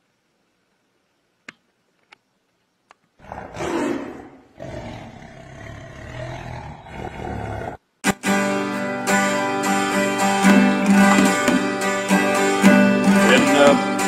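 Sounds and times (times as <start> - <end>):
lion roaring: 3.2 - 7.8.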